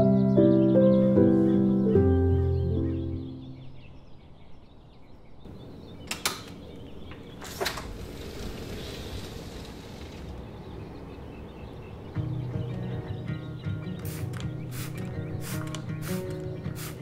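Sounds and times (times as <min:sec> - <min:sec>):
door latch clicks: 0:06.0 - 0:07.9.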